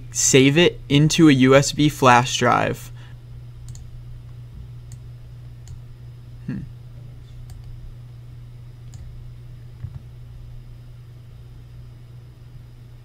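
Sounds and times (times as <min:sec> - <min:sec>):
low electrical hum: 0:00.0 - 0:13.0
computer mouse clicks: 0:03.7 - 0:03.9, 0:07.4 - 0:07.7, 0:08.9 - 0:09.1.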